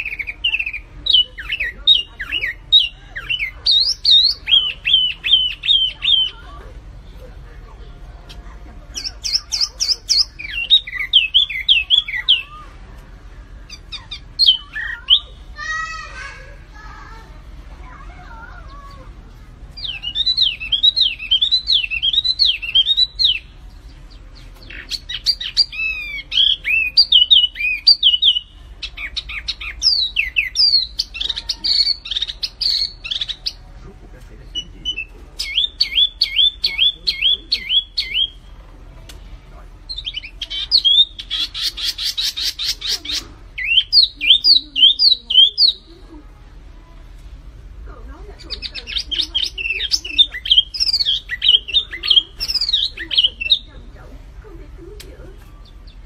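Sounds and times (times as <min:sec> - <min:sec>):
songbird singing whistled notes: 0:00.0 - 0:06.5, 0:08.9 - 0:12.7, 0:13.7 - 0:15.4, 0:19.8 - 0:33.7, 0:34.5 - 0:38.5, 0:39.9 - 0:45.9, 0:48.4 - 0:53.8
harsh rattling bird call: 0:00.0 - 0:06.6, 0:08.4 - 0:12.8, 0:19.8 - 0:33.7, 0:39.9 - 0:45.9, 0:48.4 - 0:53.7.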